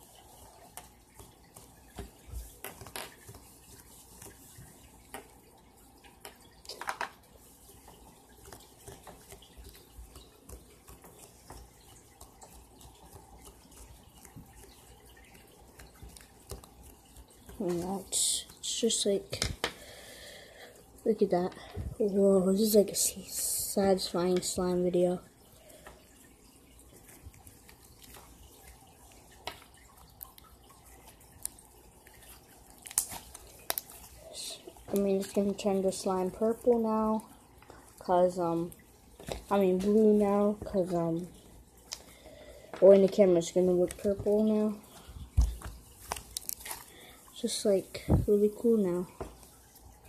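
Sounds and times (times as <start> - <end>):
slime squelching and clicking: 45.5 - 46.8.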